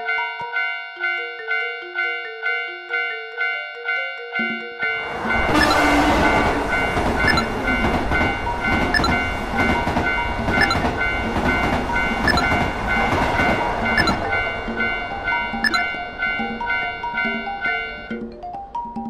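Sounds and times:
level crossing warning bell ringing: 0.0 - 19.0
train rumbling past: 4.8 - 18.1.

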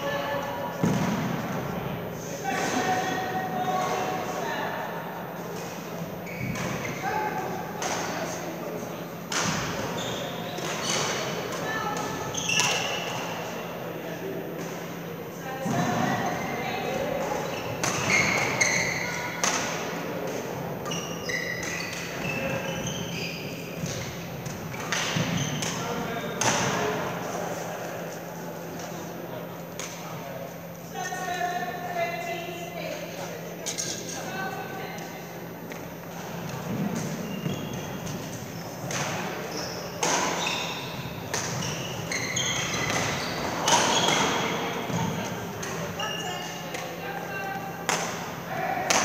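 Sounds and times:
shoes squeaking on court floor: 5.4 - 13.7, 14.6 - 28.2, 35.8 - 47.6.

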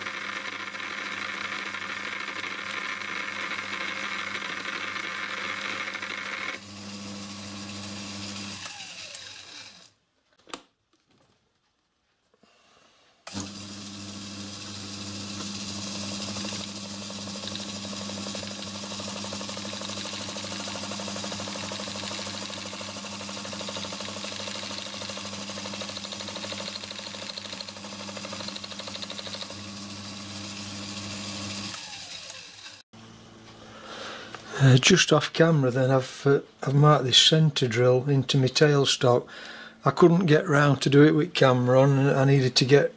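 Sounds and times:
lathe motor humming: 0.0 - 9.9, 13.3 - 32.8.

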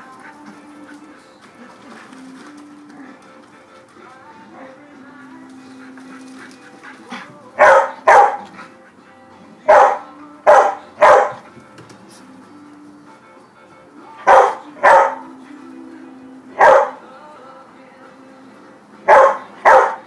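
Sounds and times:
quiet background music: 0.0 - 20.0
dog barking: 7.6 - 8.6, 9.7 - 11.4, 14.2 - 15.3, 16.6 - 17.0, 19.1 - 20.0.

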